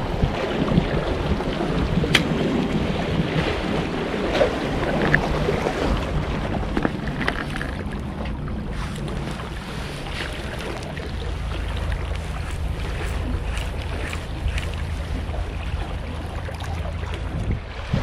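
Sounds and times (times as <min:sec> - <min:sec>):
sea washing against rocks: 0:00.0 - 0:18.0
wind buffeting microphone: 0:00.0 - 0:18.0.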